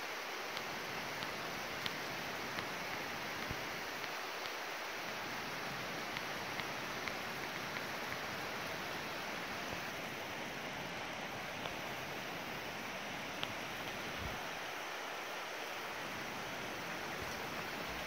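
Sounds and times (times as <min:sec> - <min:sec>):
faint ticks: 0:00.5 - 0:04.6.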